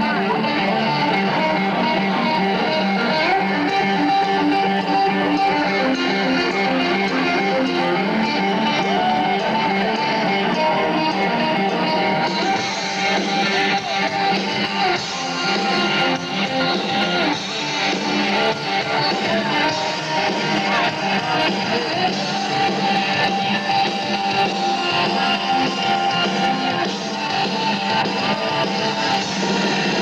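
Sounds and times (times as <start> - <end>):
electric guitar playing rock riffs: 0.0 - 30.0.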